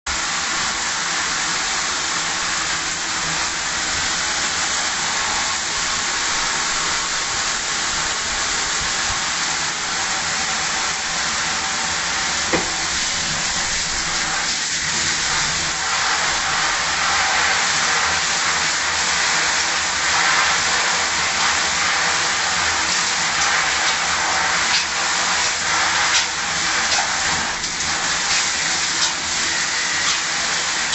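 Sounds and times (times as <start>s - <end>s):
shower water spray hissing: 0.1s - 30.9s.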